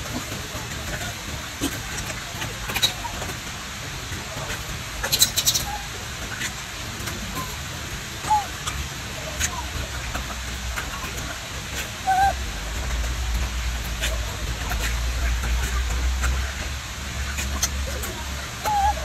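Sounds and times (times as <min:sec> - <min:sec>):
steady hiss: 0:00.0 - 0:19.0
monkey chirping calls: 0:05.0 - 0:06.6, 0:08.2 - 0:09.8, 0:12.0 - 0:12.5, 0:17.4 - 0:19.0.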